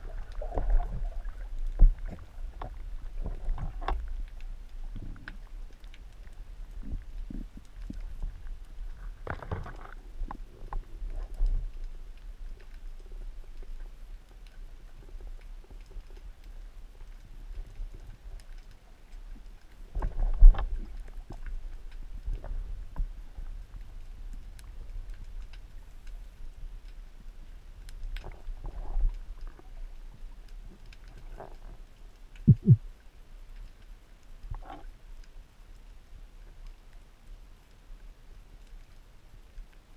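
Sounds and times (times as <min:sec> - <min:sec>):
water swishing: 0:00.0 - 0:12.8
faint clicks and ticks: 0:00.0 - 0:39.9
low rumble of moving water: 0:00.0 - 0:39.9
low underwater thumps: 0:32.5 - 0:32.8.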